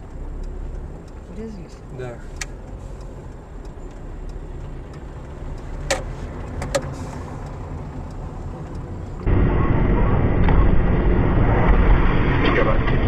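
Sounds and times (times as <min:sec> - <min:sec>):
sharp clicks: 0:00.0 - 0:08.9
car engine and road noise: 0:00.0 - 0:13.0
rough rumble of car driving: 0:00.0 - 0:13.0.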